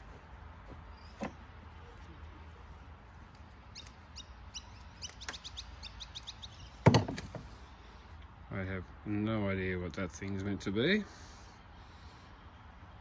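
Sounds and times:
high bird-like chirps: 0:03.7 - 0:06.9.

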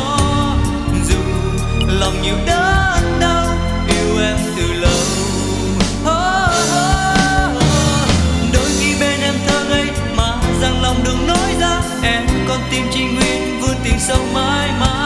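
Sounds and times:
pop love song: 0:00.0 - 0:15.0
drum beat: 0:06.0 - 0:10.8.

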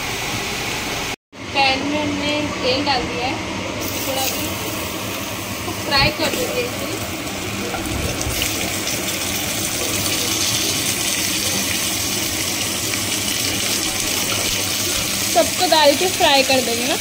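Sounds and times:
oil sizzling in a frying pan: 0:03.8 - 0:17.0.

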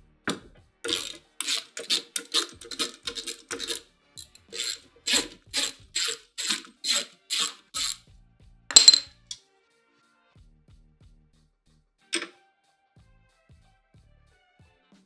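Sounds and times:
hand ratchet clicking: 0:00.3 - 0:08.0, 0:08.7 - 0:09.4.

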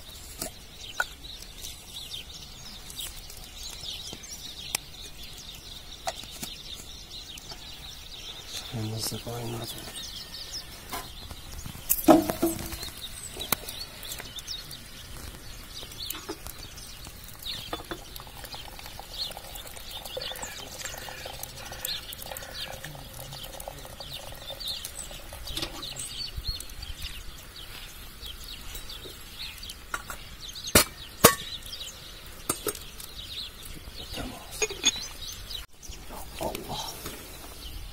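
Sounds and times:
birds chirping: 0:00.0 - 0:37.9
water running into a teapot: 0:16.2 - 0:26.2
porcelain and metal clinks: 0:34.6 - 0:35.1.

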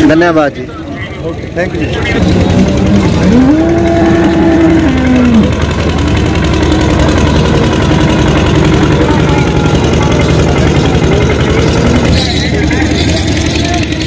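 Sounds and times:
engine running: 0:00.0 - 0:14.0
long drawn-out call: 0:02.5 - 0:10.6.

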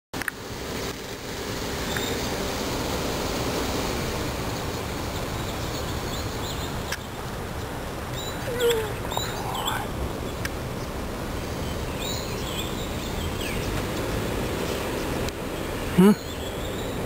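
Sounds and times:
birds chirping: 0:01.8 - 0:02.3, 0:04.4 - 0:17.0.

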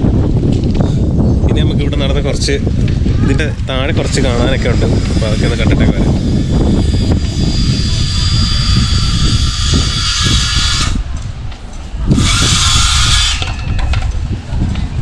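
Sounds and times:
power tool whirring: 0:04.6 - 0:11.0, 0:12.1 - 0:13.9.

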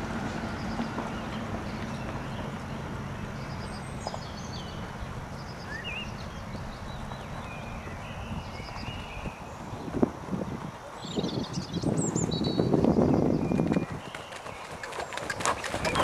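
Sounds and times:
steady low rumble: 0:00.0 - 0:13.5
small birds chirping: 0:00.4 - 0:16.0
horse hoofbeats on sand: 0:08.6 - 0:16.0.

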